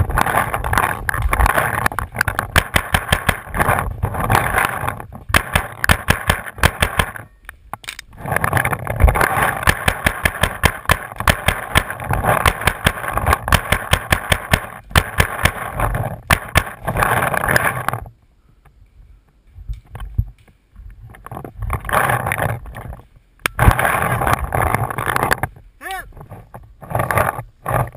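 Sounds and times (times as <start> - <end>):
paintball markers firing: 1.3 - 3.7, 5.3 - 7.3, 9.2 - 16.8.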